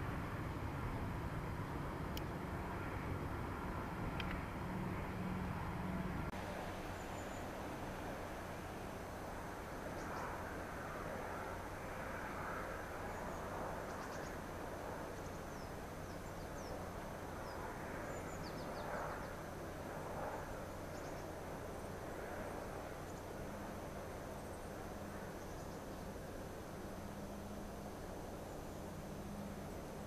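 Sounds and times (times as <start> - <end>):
distant diesel locomotive drone: 0.0 - 30.0
small birds chirping: 13.0 - 19.5, 20.7 - 22.0, 24.1 - 26.2.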